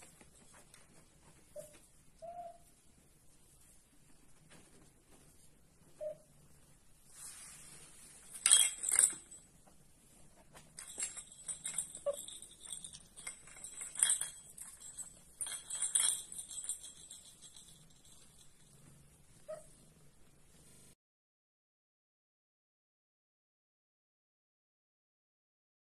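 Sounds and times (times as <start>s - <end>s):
small metal pieces jingling: 8.4s - 9.4s, 10.8s - 18.4s.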